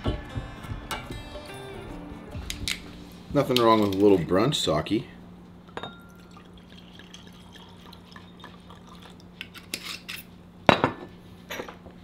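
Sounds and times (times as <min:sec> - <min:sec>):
steady low hum: 0:00.0 - 0:12.0
liquid trickling into glass: 0:05.8 - 0:09.4.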